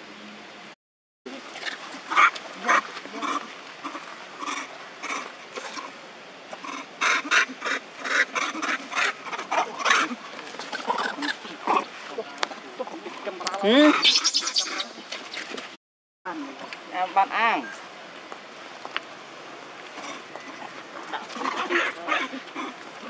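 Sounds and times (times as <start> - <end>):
steady outdoor hiss: 0.0 - 23.0
young macaques calling: 6.6 - 11.9, 13.7 - 15.0, 20.0 - 22.8.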